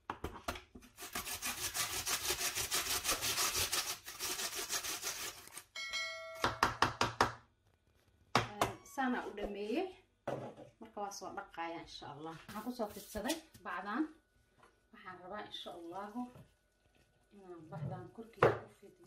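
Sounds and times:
potato grating on metal grater: 0.9 - 5.7.

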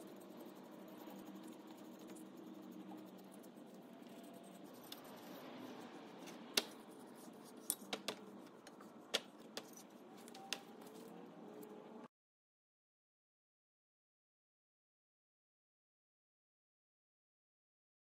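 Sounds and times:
paintbrush brushing: 0.0 - 11.2.

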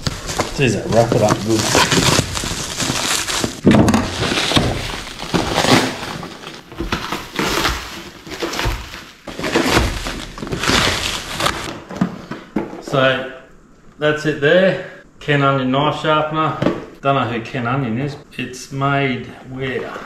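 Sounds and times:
packaging ripping and rustling: 0.0 - 11.8.

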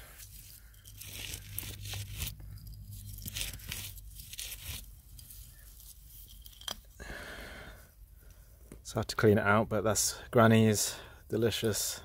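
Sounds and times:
hand digging through gritty soil: 0.0 - 6.9.

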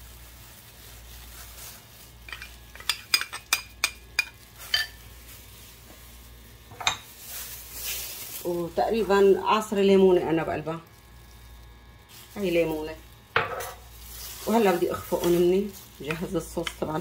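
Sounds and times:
metal spoon clinking against cup: 2.3 - 5.0.

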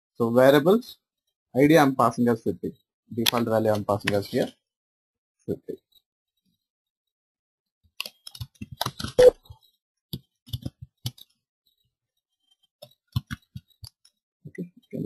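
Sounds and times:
computer mouse clicks: 10.2 - 11.4, 12.8 - 14.2.

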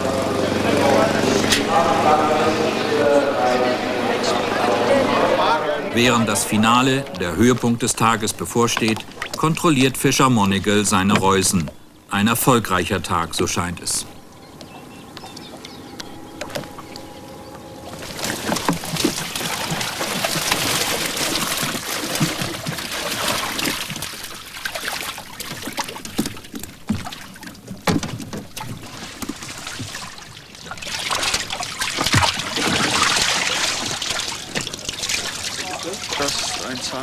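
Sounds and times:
water splashing and sloshing: 0.0 - 37.0
knocks against boat: 26.0 - 29.4.

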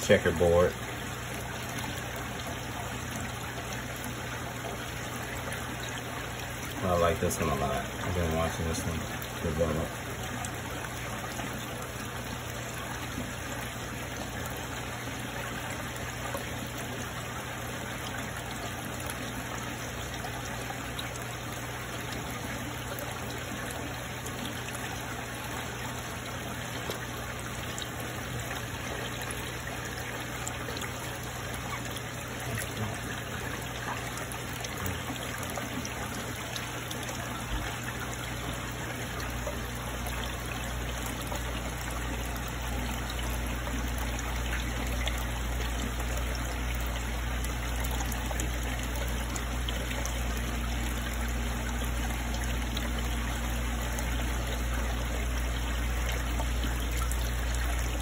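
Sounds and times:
water trickling: 0.0 - 58.0.

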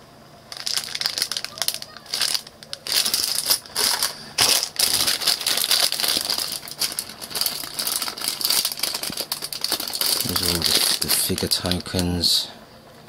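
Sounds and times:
wooden tokens rattling: 0.5 - 11.4
plastic bag crinkling: 0.5 - 12.0.

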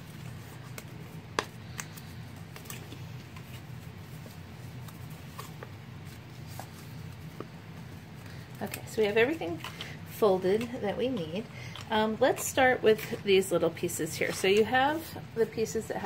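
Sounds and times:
paper rustling and crackling: 0.0 - 10.8
steady low hum: 0.0 - 16.0.

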